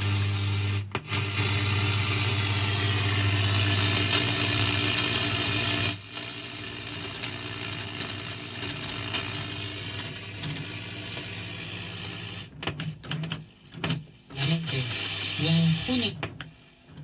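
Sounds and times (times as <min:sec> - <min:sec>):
radio static hiss: 0:14.3 - 0:16.2.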